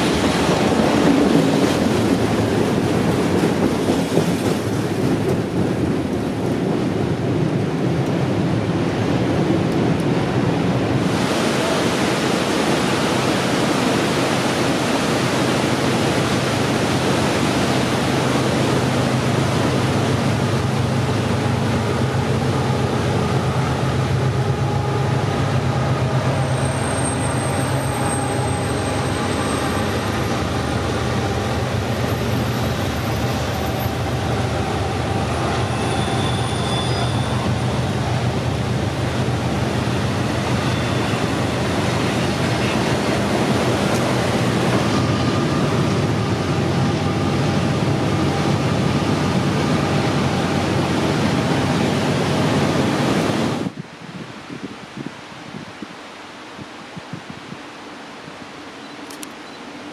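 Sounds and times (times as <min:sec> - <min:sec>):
freight train wheels rumbling: 0:00.0 - 0:53.8
thin high squeal: 0:35.6 - 0:37.4.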